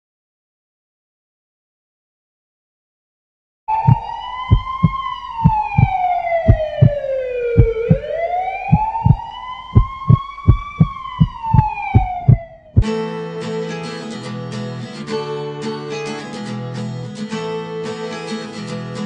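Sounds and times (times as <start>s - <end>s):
siren wailing: 3.7s - 12.8s
low thumping beat: 3.9s - 7.0s, 7.6s - 12.9s.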